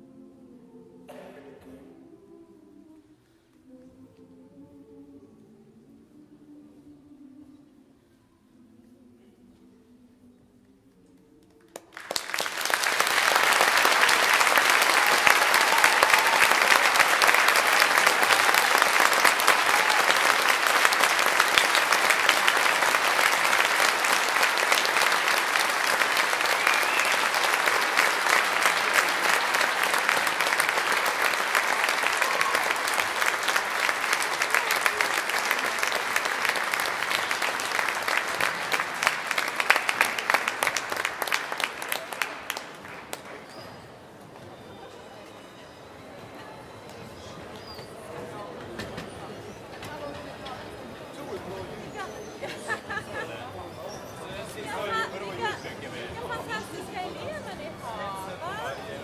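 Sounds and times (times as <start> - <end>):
audience applauding: 11.6 - 44.0.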